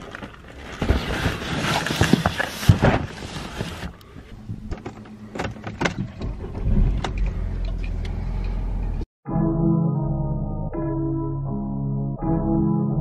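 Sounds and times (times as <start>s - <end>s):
cardboard boxes rustling: 0.0s - 4.0s
car engine starting and idling: 4.0s - 9.1s.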